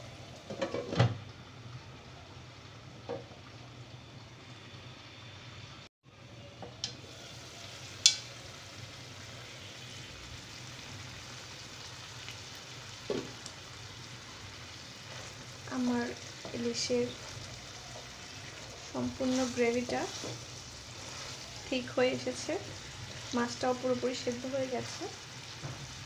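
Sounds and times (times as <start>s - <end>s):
fish sizzling in a frying pan: 6.8s - 26.0s.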